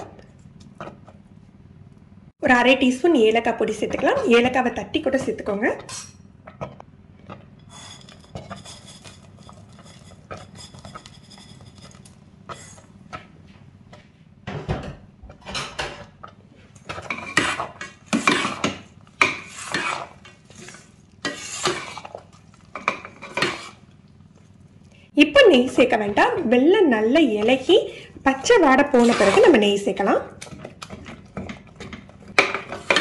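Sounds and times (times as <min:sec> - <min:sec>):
spoon scraping pot: 0:07.5 - 0:13.0, 0:16.8 - 0:23.9, 0:28.4 - 0:29.8.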